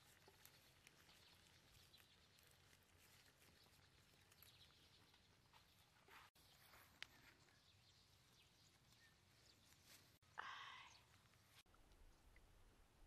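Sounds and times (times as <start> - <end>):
leaves rustling: 0.0 - 10.3.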